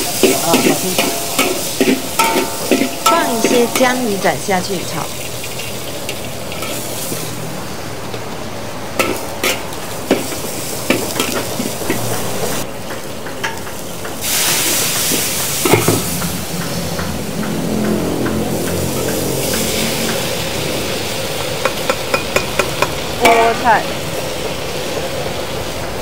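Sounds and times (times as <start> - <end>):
food sizzling in a pan: 0.0 - 26.0
spatula clicking against pan: 16.1 - 20.2.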